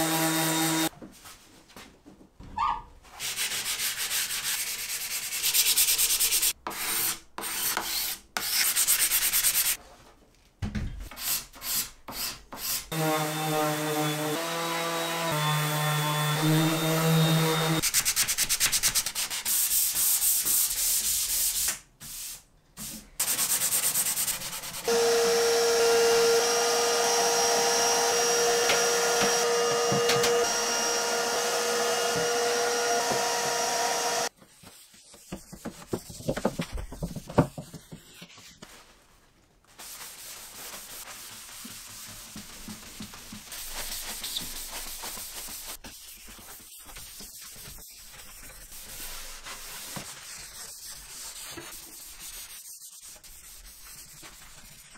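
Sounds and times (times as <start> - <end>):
orbital sander on wood: 0.0 - 0.9, 12.9 - 17.8, 24.9 - 34.3
vacuum cleaner whining: 24.9 - 34.3.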